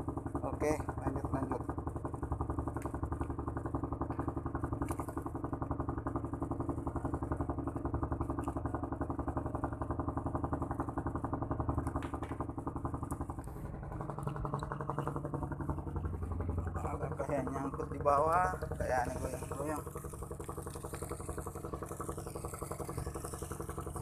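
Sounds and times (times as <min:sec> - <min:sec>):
generator engine pulsing hum: 0:00.0 - 0:24.0.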